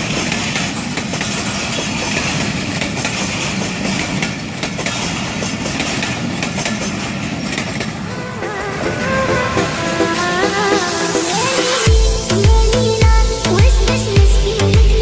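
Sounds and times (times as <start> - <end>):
train wheels clattering over joints: 0.0 - 8.6
train rumble: 0.0 - 15.0.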